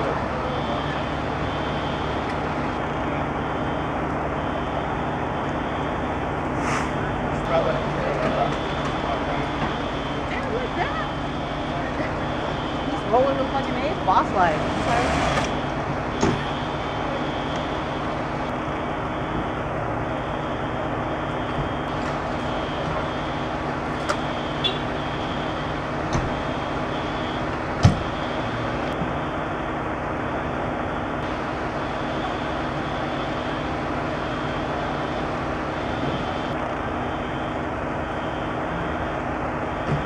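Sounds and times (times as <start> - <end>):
diesel engine idling: 0.0 - 40.0.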